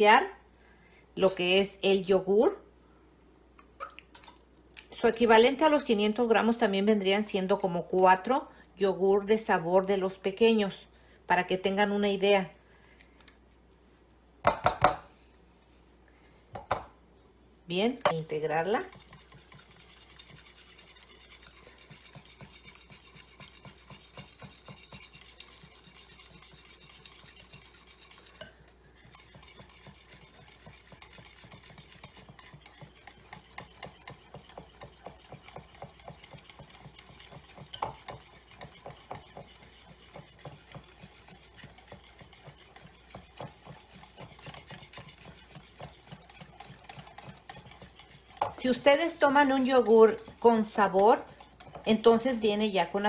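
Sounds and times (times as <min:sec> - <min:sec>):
whisk beating in a bowl: 0:18.0 - 0:53.0.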